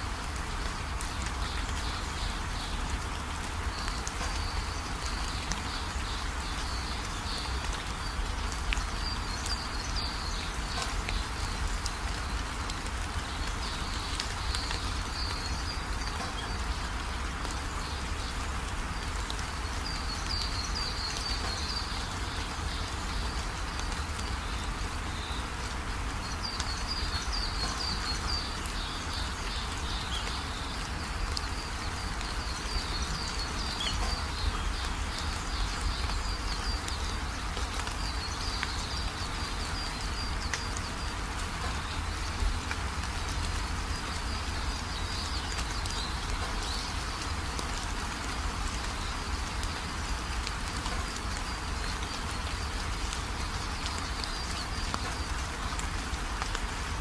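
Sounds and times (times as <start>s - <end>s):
steady forest hiss: 0.0s - 57.0s.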